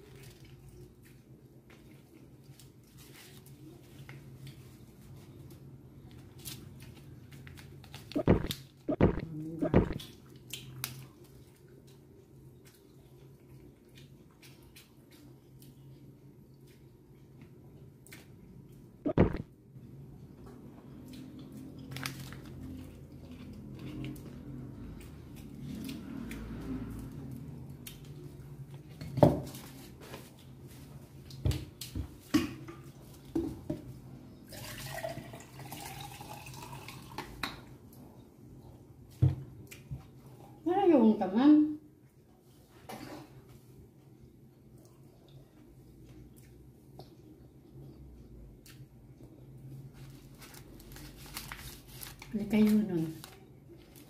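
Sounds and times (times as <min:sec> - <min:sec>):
chewing: 0:06.4 - 0:18.9, 0:20.9 - 0:28.9
steady low hum: 0:08.2 - 0:10.1
paper wrapper crinkling: 0:21.9 - 0:22.6, 0:50.0 - 0:54.0.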